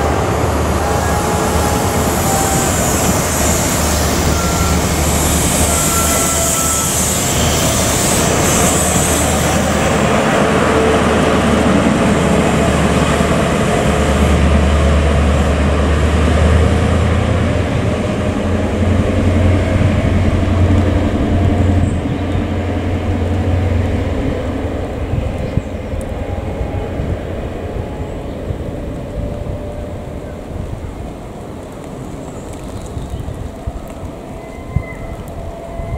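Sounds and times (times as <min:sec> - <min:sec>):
deep diesel engine drone: 0:00.0 - 0:31.6
wheel and rail noise: 0:00.0 - 0:35.9.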